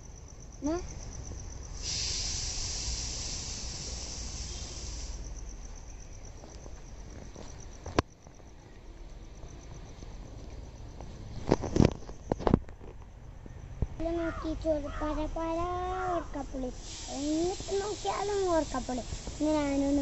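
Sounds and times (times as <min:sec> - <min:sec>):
insect chirring: 0:00.0 - 0:20.0
hiss: 0:01.2 - 0:06.0, 0:15.7 - 0:20.0.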